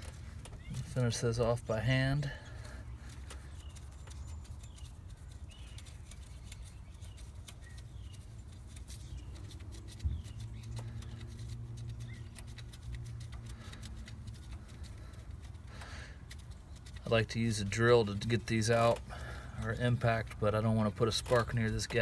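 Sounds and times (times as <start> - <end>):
faint clicks of nuts unscrewed: 0.0 - 1.6, 10.6 - 22.0
bird chirps: 0.4 - 1.1, 2.4 - 13.2.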